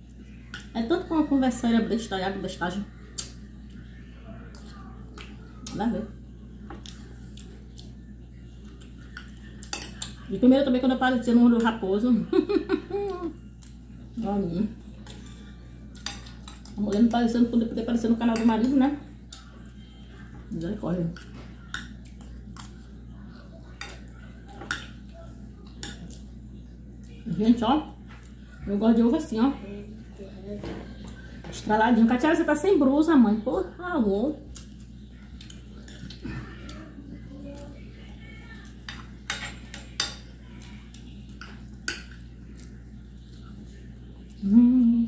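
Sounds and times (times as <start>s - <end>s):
fork clinking and scraping on plate: 8.9s - 10.3s, 38.9s - 40.3s
person humming: 44.4s - 45.0s.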